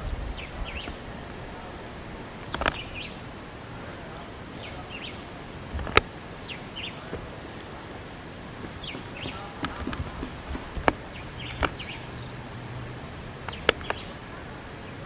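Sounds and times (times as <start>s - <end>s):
small birds chirping: 0.0s - 15.0s
steady hiss: 0.0s - 15.0s.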